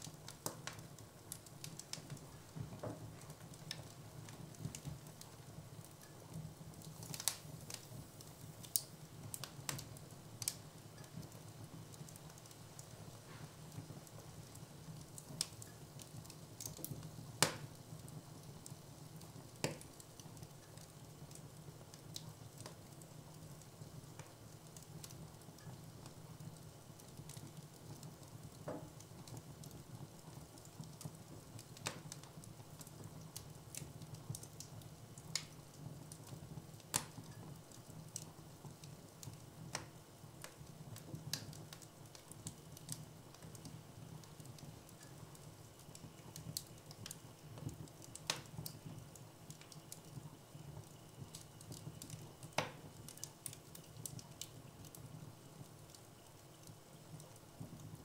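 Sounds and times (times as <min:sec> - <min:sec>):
wood fire crackling: 0:00.0 - 0:58.0
sharp pops of burning logs: 0:05.9 - 0:11.4, 0:12.0 - 0:17.8, 0:18.4 - 0:22.8, 0:30.6 - 0:50.2, 0:50.8 - 0:55.0.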